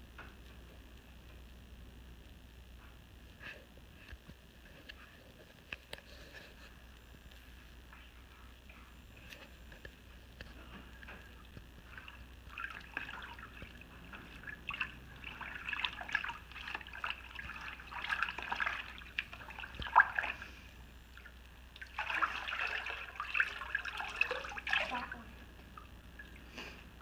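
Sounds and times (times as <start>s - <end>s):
water sloshing in a plastic tub: 8.6s - 27.0s.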